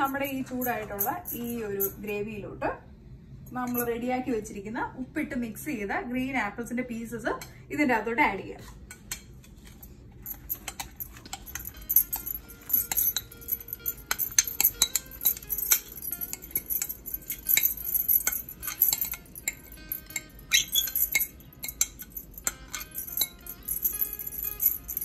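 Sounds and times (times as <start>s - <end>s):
metal spoon scraping a bowl: 14.0s - 23.3s.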